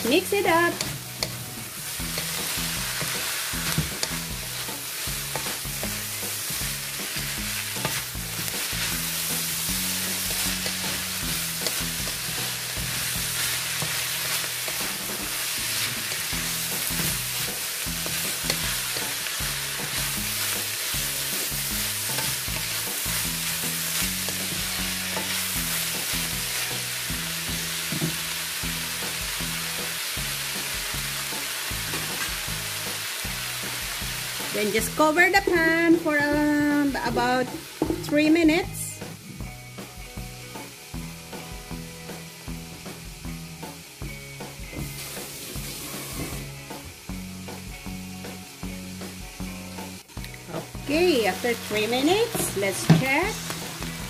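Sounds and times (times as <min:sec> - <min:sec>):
food sizzling in a wok: 0:00.0 - 0:54.0
wooden spatula scraping and clattering: 0:45.4 - 0:46.5.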